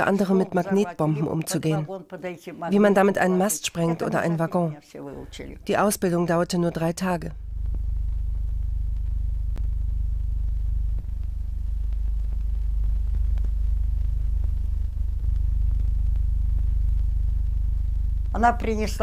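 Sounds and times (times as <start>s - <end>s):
deep rumbling drone: 5.2s - 19.0s.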